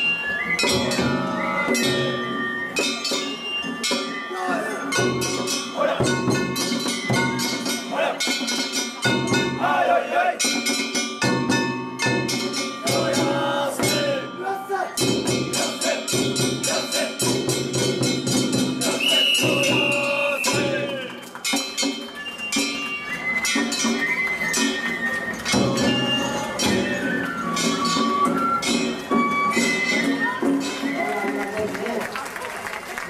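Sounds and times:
metallic clanging percussion: 0:00.0 - 0:32.0
men calling in crowd: 0:04.2 - 0:06.5, 0:07.7 - 0:08.4, 0:09.5 - 0:10.5, 0:12.8 - 0:17.4, 0:18.8 - 0:21.3.

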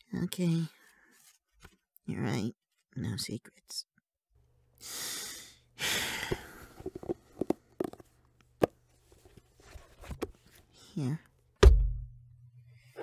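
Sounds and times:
person sighing: 0:04.9 - 0:06.8.

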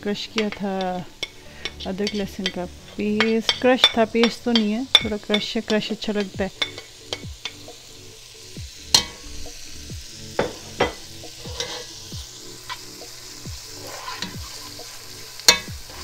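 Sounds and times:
food sizzling in oil: 0:00.0 - 0:16.0
spatula scraping a pot: 0:00.2 - 0:07.7, 0:10.4 - 0:12.0, 0:13.7 - 0:16.0
spatula knocking against pot: 0:10.4 - 0:11.0.

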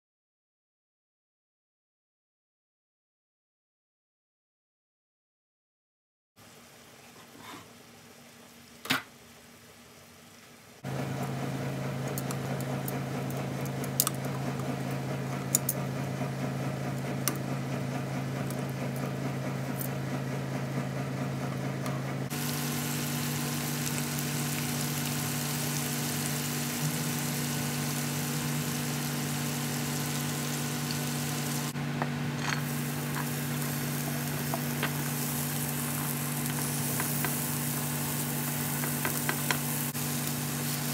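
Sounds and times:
oil sizzling in frying pan: 0:06.4 - 0:07.1, 0:22.3 - 0:31.8, 0:32.4 - 0:40.9
steady low hum: 0:18.1 - 0:40.9.

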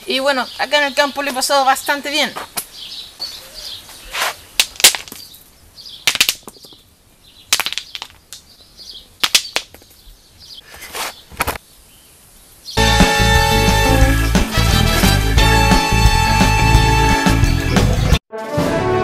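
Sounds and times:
stones clacking against stones: 0:04.6 - 0:05.3, 0:06.0 - 0:06.8, 0:07.5 - 0:08.5, 0:09.2 - 0:10.0.

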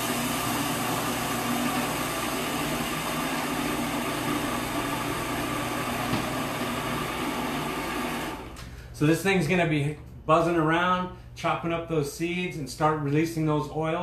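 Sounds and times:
food processor grinding seeds: 0:00.0 - 0:08.6.

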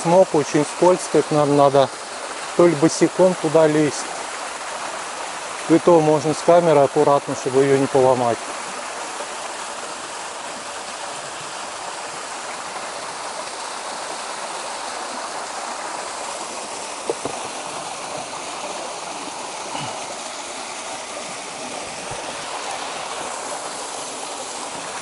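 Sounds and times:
waterfall rushing: 0:00.0 - 0:25.0
faint knocks: 0:17.0 - 0:17.5.

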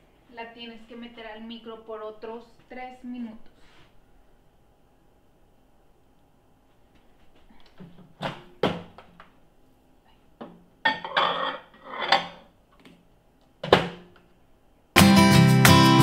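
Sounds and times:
ceramic plate clinking and scraping: 0:10.9 - 0:12.5.

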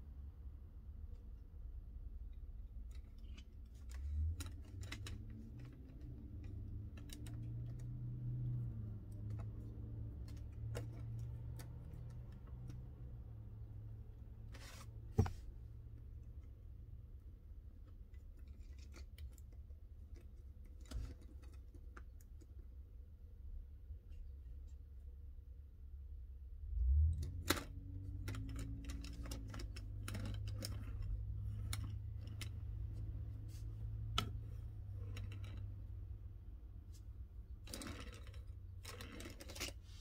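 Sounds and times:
low steady hum: 0:00.0 - 0:40.0.

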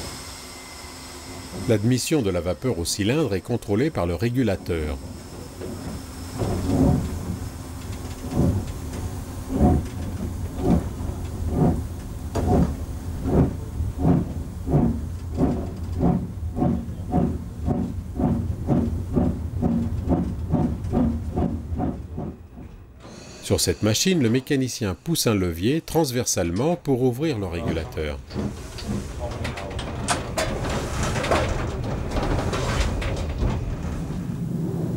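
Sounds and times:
steam locomotive chuffing: 0:00.0 - 0:25.9, 0:27.4 - 0:34.9
low rumble: 0:08.2 - 0:23.0.

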